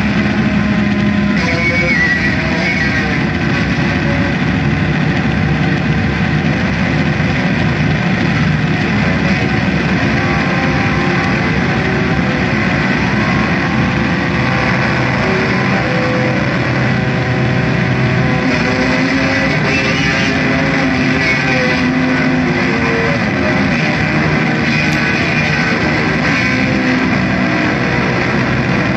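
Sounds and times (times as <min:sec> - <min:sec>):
amplified electric guitar drone: 0:00.0 - 0:28.9.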